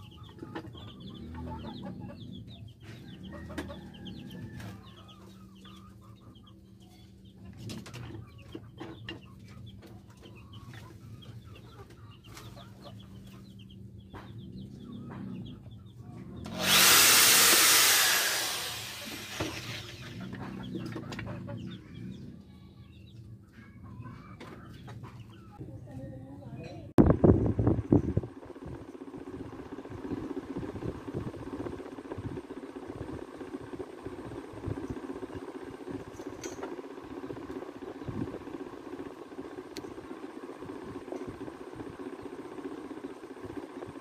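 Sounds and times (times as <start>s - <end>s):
chickens clucking: 0.0s - 16.4s, 19.9s - 25.7s
power tool whining: 16.4s - 21.2s, 27.6s - 44.0s.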